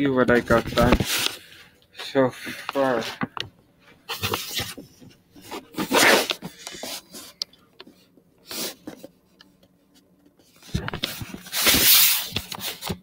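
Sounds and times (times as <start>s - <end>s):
phone microphone rubbing and rustling: 0.3s - 1.5s.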